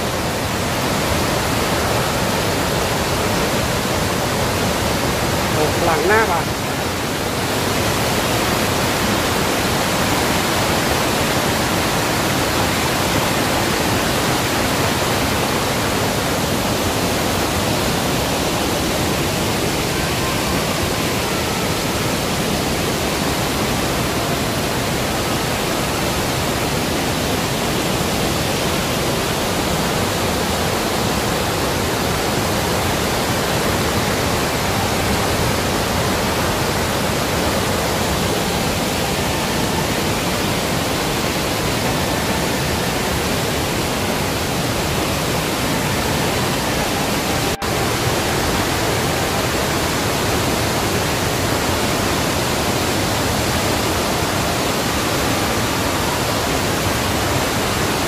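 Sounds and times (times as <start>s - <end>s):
waterfall rushing: 0.0s - 58.0s.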